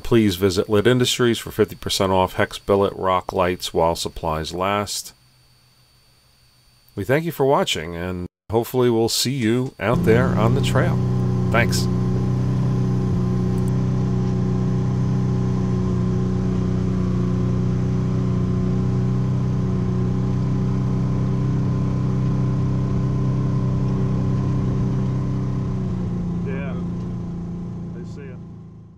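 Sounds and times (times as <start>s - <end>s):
motor droning hum: 9.4s - 28.9s.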